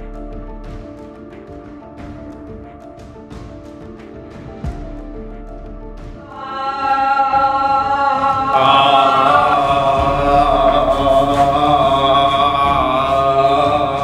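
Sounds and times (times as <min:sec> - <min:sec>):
voices chanting held tones: 0:06.2 - 0:14.0.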